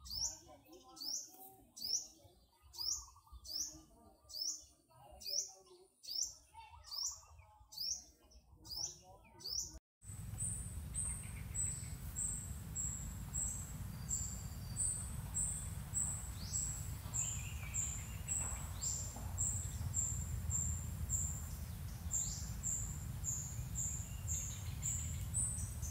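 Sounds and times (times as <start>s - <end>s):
steady low rumble: 10.1s - 25.9s.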